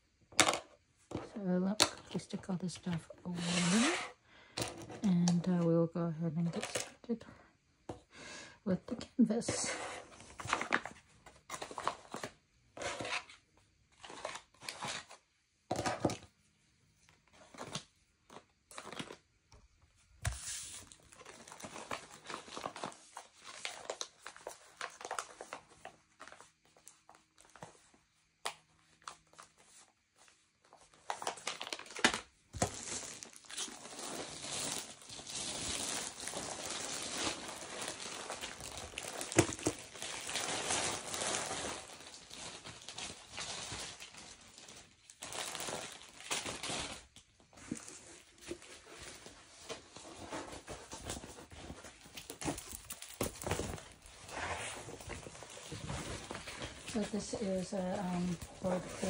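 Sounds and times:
plastic packaging crinkling: 20.4s - 27.7s, 30.8s - 59.0s.

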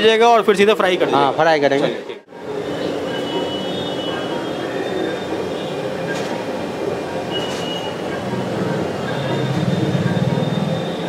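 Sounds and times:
busy street-food kitchen: 0.0s - 11.0s
faint high tones: 6.8s - 11.0s.

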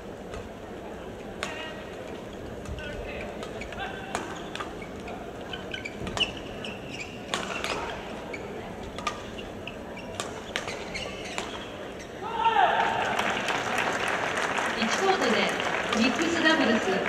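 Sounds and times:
shoes squeaking on court floor: 0.2s - 12.2s
rackets hitting shuttlecock: 1.4s - 1.7s, 3.4s - 5.1s, 7.2s - 8.0s, 8.8s - 9.3s, 10.0s - 11.7s.

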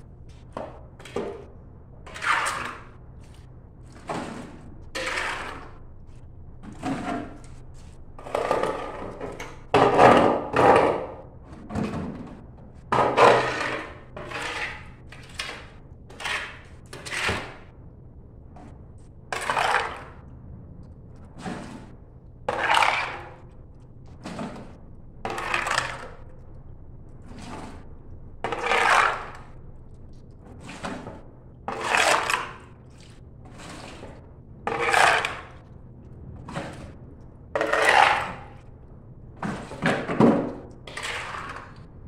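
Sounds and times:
blade scraping tiled floor: 2.1s - 5.8s, 6.7s - 12.2s, 12.9s - 17.7s, 19.3s - 20.2s, 21.3s - 23.6s, 24.2s - 26.3s, 27.2s - 29.6s, 30.5s - 35.6s, 37.6s - 38.6s, 39.4s - 41.9s.

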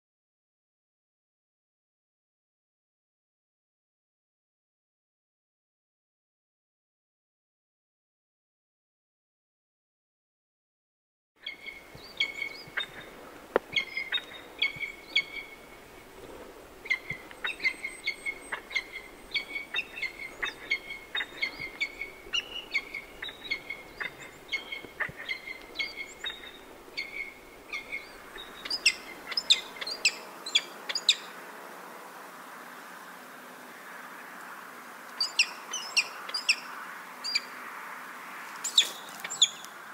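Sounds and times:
falcon calling: 11.4s - 31.3s, 35.2s - 37.5s, 38.6s - 39.7s
faint background hiss: 11.4s - 39.9s.

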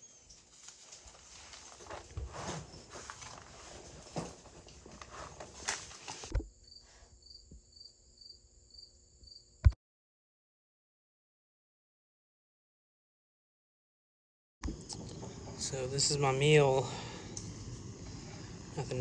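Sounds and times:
insect chirping: 5.7s - 9.7s, 14.7s - 19.0s
faint steady hum: 14.6s - 19.0s.

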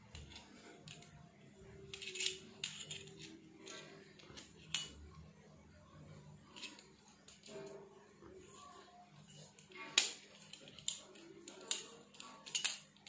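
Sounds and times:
metallic clicks and clinks: 0.1s - 5.1s, 9.6s - 13.0s.

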